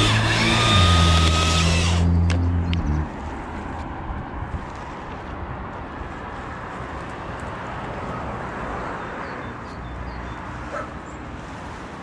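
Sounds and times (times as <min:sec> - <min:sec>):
dog barking: 0:10.7 - 0:11.0.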